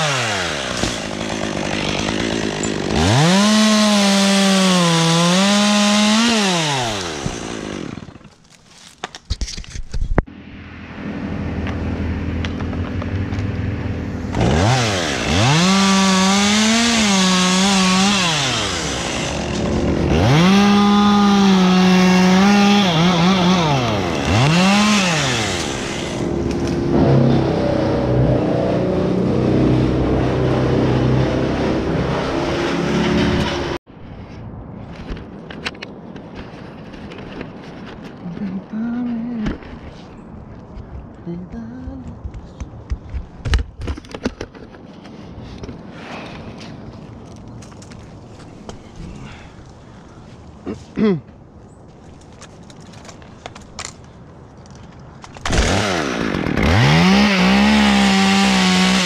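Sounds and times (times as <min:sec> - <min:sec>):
chainsaw cutting wood: 0:00.0 - 0:08.9, 0:12.2 - 0:33.8, 0:55.3 - 0:59.0.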